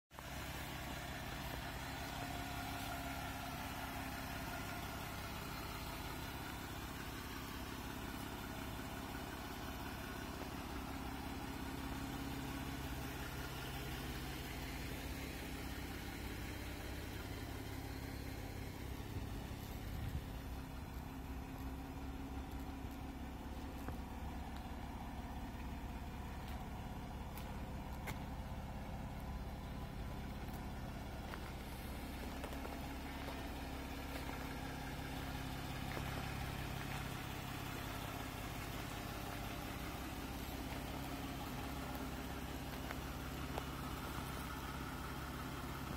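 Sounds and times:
car engine idling: 0:00.1 - 0:45.9.

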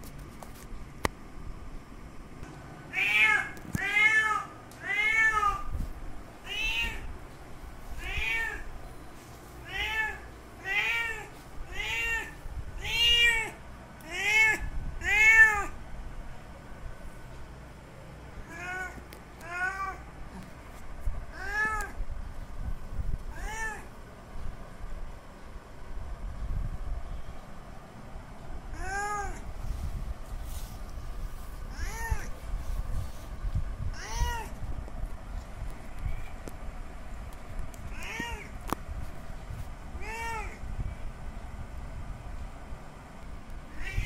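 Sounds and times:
cat meowing: 0:02.9 - 0:05.7, 0:06.4 - 0:07.1, 0:08.0 - 0:08.7, 0:09.6 - 0:15.8, 0:18.4 - 0:20.0, 0:21.3 - 0:22.0, 0:23.3 - 0:23.9, 0:28.7 - 0:29.4, 0:31.7 - 0:32.3, 0:33.9 - 0:34.6, 0:37.9 - 0:38.6, 0:40.0 - 0:40.6, 0:43.7 - 0:44.0.

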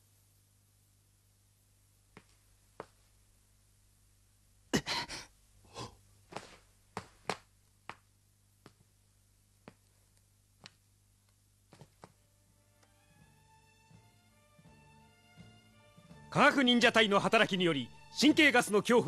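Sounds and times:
person gasping for breath: 0:04.8 - 0:06.0.

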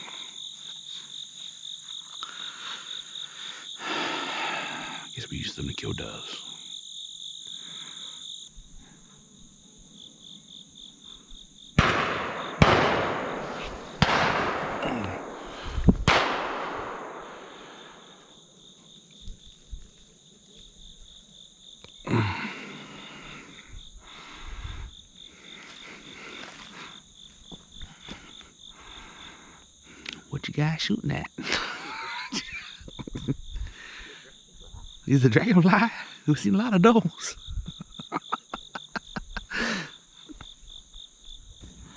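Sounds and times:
insects buzzing: 0:00.0 - 0:41.9
shotgun blasts echoing: 0:11.8 - 0:18.2.

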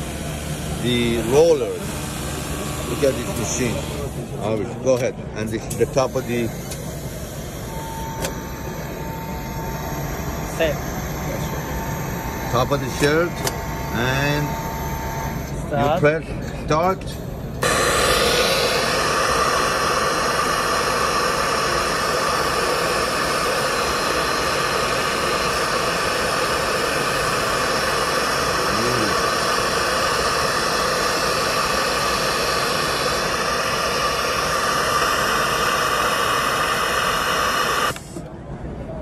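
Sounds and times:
overlock sewing machine running: 0:17.6 - 0:38.0.

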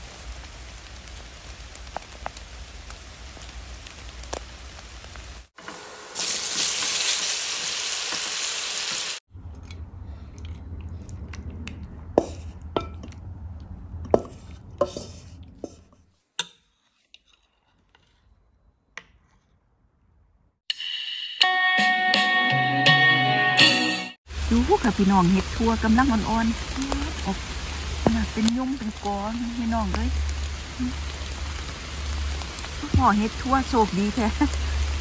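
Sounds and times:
rain falling: 0:00.0 - 0:05.6, 0:24.3 - 0:35.0
mushrooms sizzling in a wok: 0:00.0 - 0:09.2, 0:24.3 - 0:35.0.

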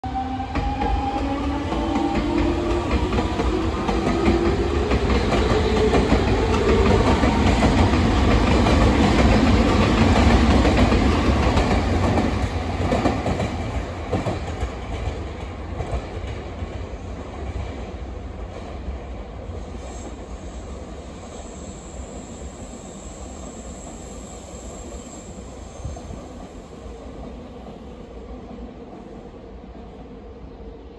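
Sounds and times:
train whine: 0:00.0 - 0:30.9.

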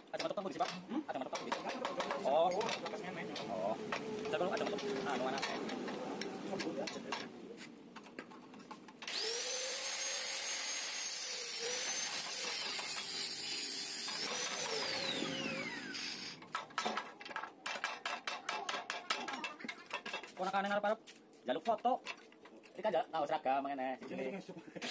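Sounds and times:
power tool motor whining: 0:09.0 - 0:16.4.

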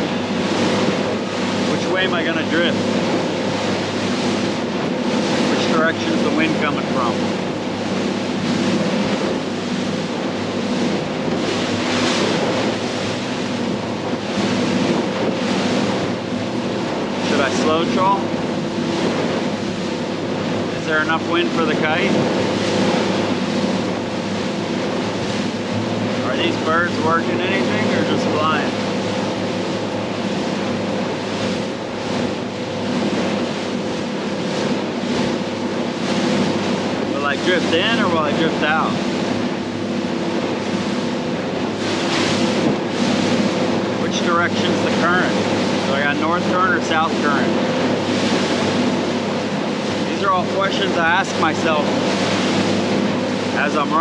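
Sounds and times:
boat engine running: 0:00.0 - 0:54.0
water rushing from hull: 0:00.0 - 0:54.0
wind buffeting microphone: 0:00.0 - 0:54.0.

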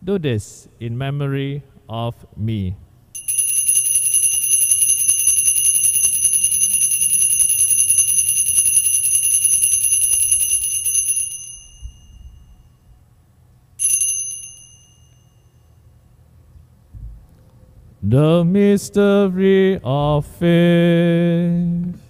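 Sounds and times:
altar bells jingling: 0:03.2 - 0:12.6, 0:13.8 - 0:15.4.

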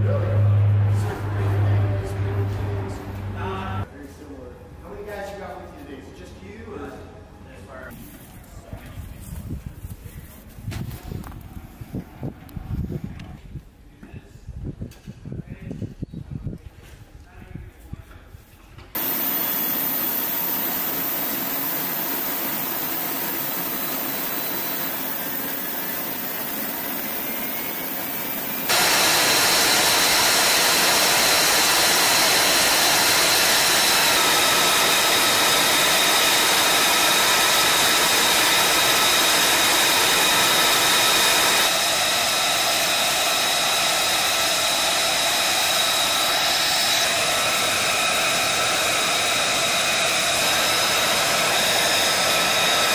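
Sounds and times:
jet engine roar with high whine: 0:19.0 - 0:52.9.

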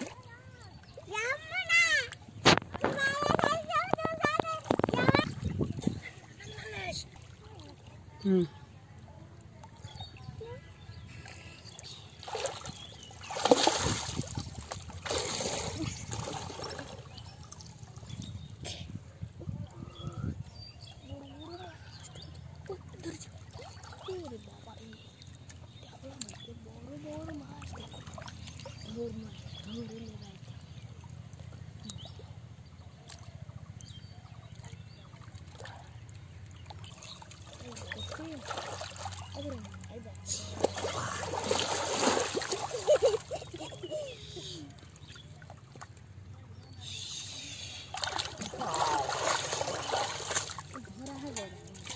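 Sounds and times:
water sloshing and trickling: 0:00.0 - 0:51.9
hands splashing in water: 0:12.2 - 0:17.8, 0:40.4 - 0:43.2, 0:47.8 - 0:51.9.

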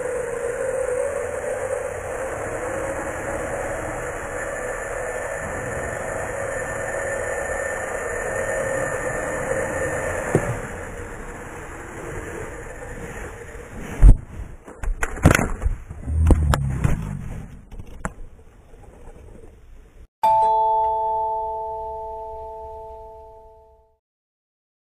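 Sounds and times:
toy helicopter motor whining: 0:00.0 - 0:13.6
doorbell-like chime: 0:20.2 - 0:24.0.

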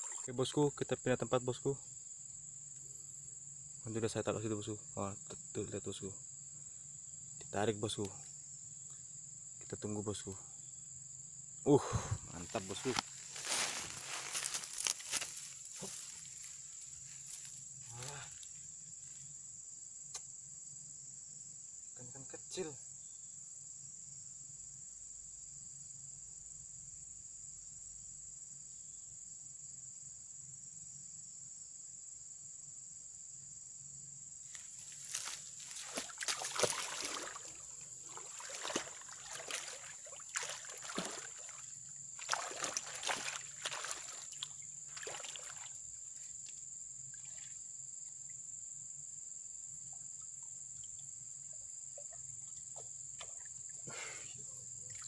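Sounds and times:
insects buzzing: 0:00.0 - 0:55.0
water splashing and sloshing: 0:12.3 - 0:17.5, 0:34.9 - 0:45.8.

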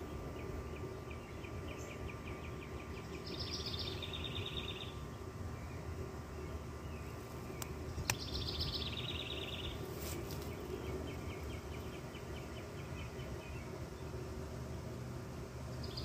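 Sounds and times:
low outdoor background hum: 0:00.0 - 0:16.0
songbird trilling: 0:00.4 - 0:05.0, 0:06.9 - 0:09.8.

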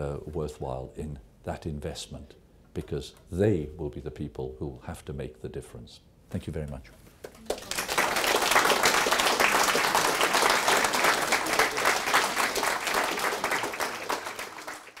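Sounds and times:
audience applauding: 0:07.4 - 0:15.0.

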